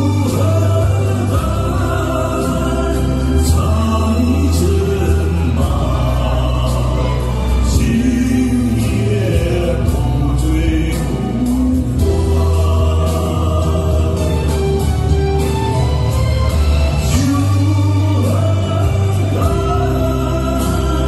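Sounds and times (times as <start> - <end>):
man singing slow ballad: 0.0 - 15.8, 16.7 - 21.0
recorded backing track: 0.0 - 21.0.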